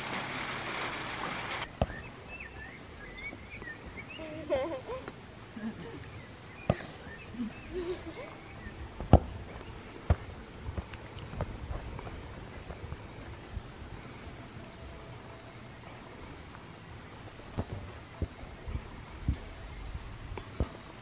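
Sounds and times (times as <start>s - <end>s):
high drone of insects: 0.0s - 21.0s
bird chirps: 1.8s - 4.4s
football kicked on artificial turf: 9.0s - 9.4s.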